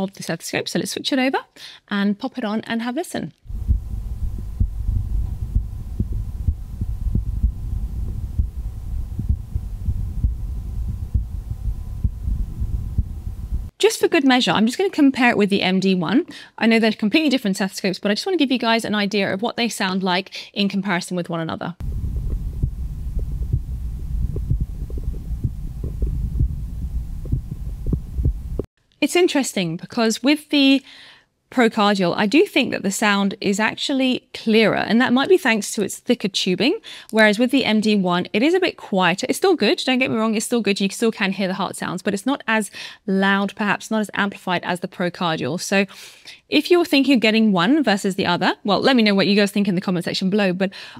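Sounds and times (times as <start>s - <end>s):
heartbeat thumps: 3.5s - 13.7s, 21.8s - 28.7s
steady low rumble: 3.5s - 13.7s, 21.8s - 28.7s.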